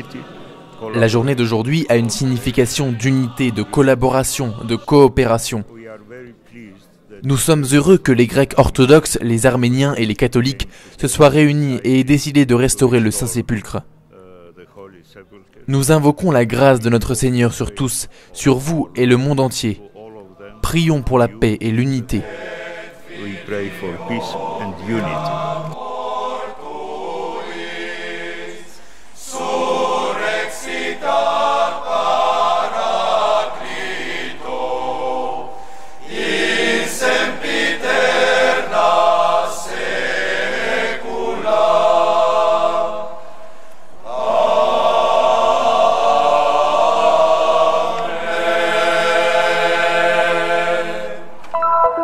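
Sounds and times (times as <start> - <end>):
choir singing chant: 0.0 - 5.6, 21.6 - 52.0.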